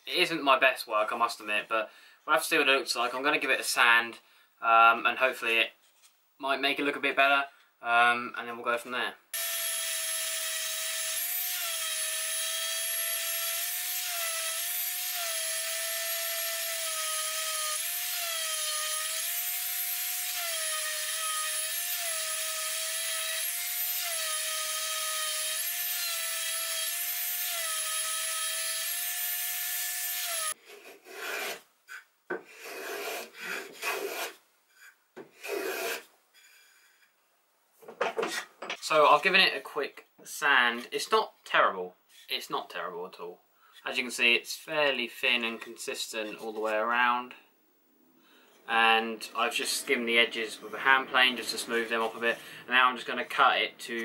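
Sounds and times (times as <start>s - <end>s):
hand plane strokes on wood: 30.6s - 37.1s.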